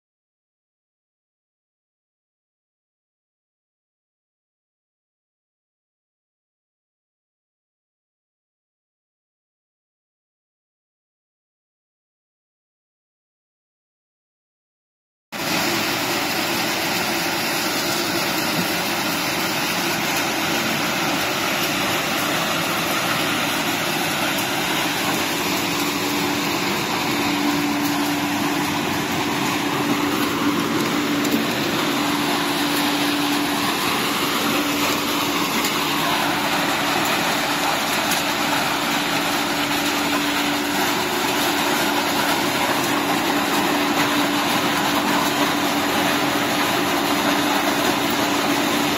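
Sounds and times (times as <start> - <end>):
recycling machinery running: 15.4 - 48.9.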